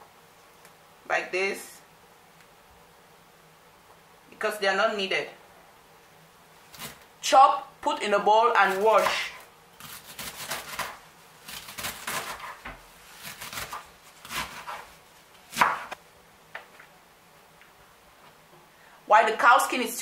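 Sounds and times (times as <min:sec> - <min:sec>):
knife chopping on cutting board: 0:09.0 - 0:14.9, 0:15.5 - 0:16.0.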